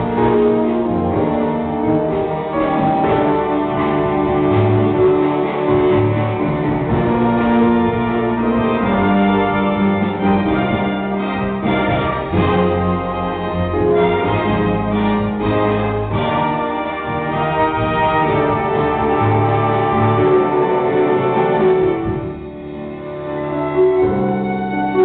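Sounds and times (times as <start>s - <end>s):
trumpet section playing: 0.0s - 22.4s
jazz big band playing: 0.0s - 25.0s.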